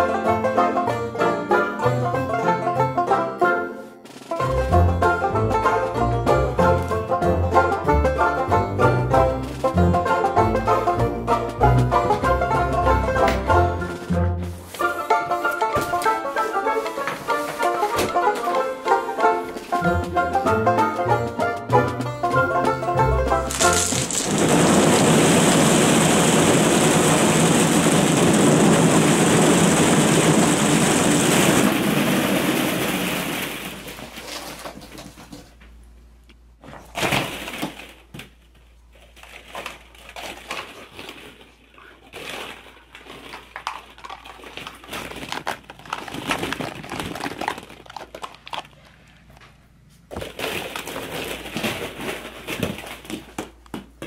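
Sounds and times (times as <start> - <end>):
plastic balls pouring out clattering: 23.2 - 35.0, 36.9 - 38.2, 39.0 - 49.0, 50.1 - 53.6
plastic balls clicking and rattling: 23.3 - 28.7, 39.0 - 49.2, 50.1 - 53.8.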